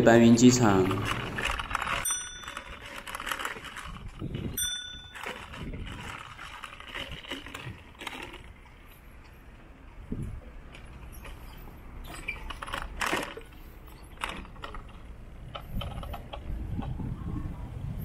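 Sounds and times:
outdoor background noise: 0.0s - 18.0s
small bell dings: 2.1s - 2.8s, 4.6s - 5.2s.

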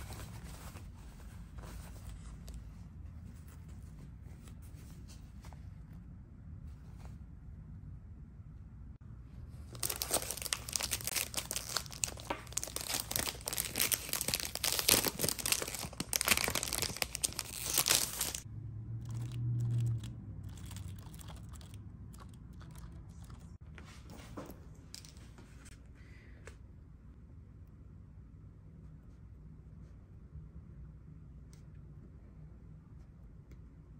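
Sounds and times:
paper and plastic rustling: 9.6s - 18.4s
plastic packaging crinkling: 9.6s - 18.4s, 19.1s - 23.4s.

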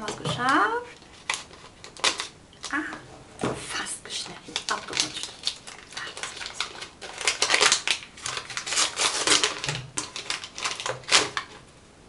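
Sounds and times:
paper crinkling and tearing: 0.9s - 2.3s, 4.3s - 11.6s.

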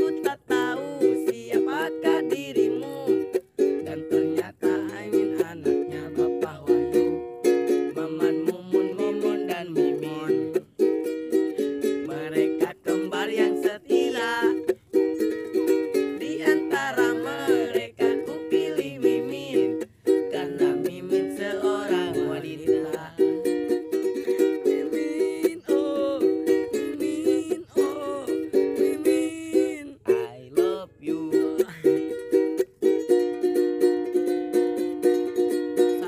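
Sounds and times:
ukulele strumming: 0.0s - 36.0s
higher melody line: 10.3s - 30.2s.

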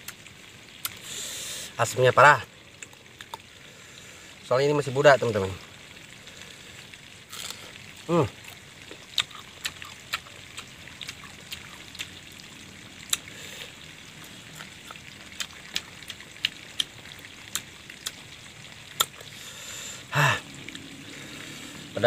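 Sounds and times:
person chewing crunchy fruit: 7.3s - 7.7s, 8.4s - 12.1s, 13.1s - 13.6s, 14.2s - 18.2s, 19.0s - 19.4s.

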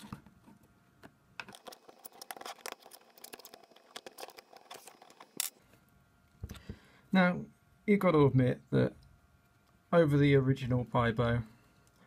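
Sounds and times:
plastic clicks and scrapes: 1.4s - 5.6s.

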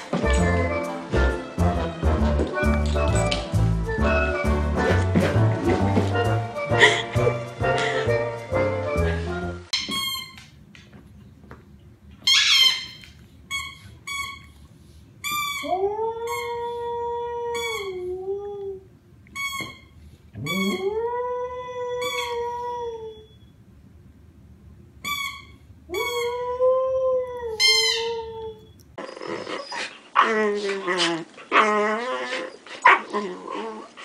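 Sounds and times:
squeaky toy squeaks: 9.7s - 10.4s, 12.2s - 14.5s, 15.2s - 15.7s, 17.6s - 18.0s, 19.4s - 20.8s, 22.0s - 22.4s, 25.0s - 26.4s, 27.6s - 28.2s.

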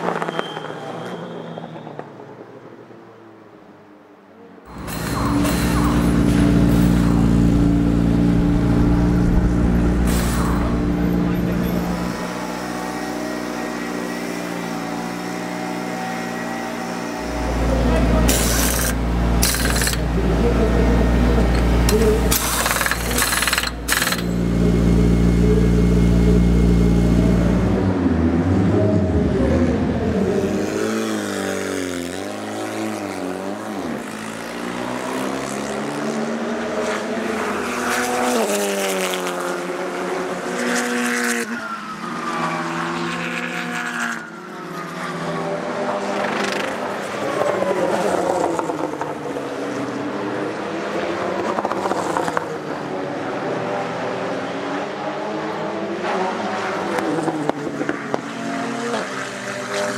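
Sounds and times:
race car engines revving and passing: 0.0s - 59.9s
pneumatic impact wrench bursts: 4.7s - 7.5s, 10.0s - 11.0s, 18.3s - 20.1s, 21.5s - 24.5s
steady low engine note: 4.7s - 12.5s, 17.2s - 30.4s.

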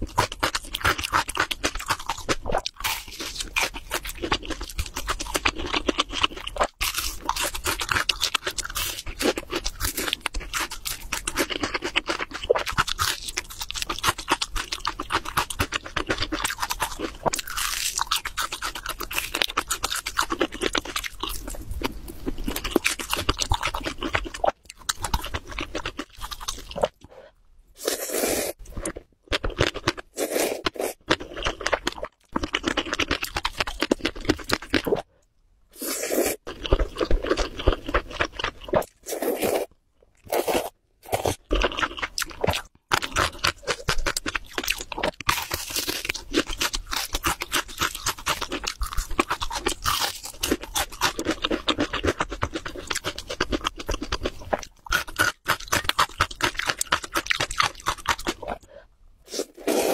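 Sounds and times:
chewing crispy chicken: 0.0s - 27.1s, 27.8s - 35.1s, 35.8s - 59.9s
slurping noodles: 27.8s - 28.6s, 30.1s - 31.0s, 35.7s - 36.5s, 38.8s - 39.7s, 59.3s - 59.9s.

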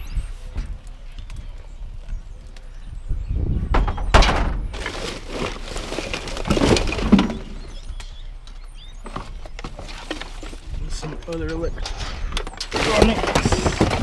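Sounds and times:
junk clunking in metal dumpster: 4.0s - 7.8s, 12.6s - 14.0s
plastic bags rustling: 4.7s - 7.8s, 12.6s - 14.0s.

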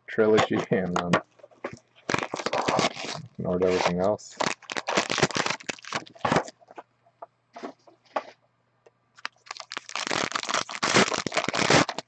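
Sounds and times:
plastic wrapper crinkling: 0.4s - 6.8s, 9.2s - 12.0s.

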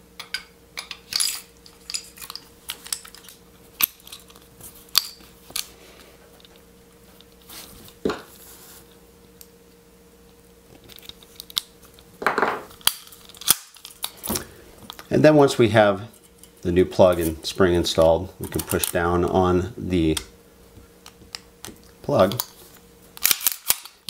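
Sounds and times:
metallic pistol parts clicking: 23.2s - 24.0s.

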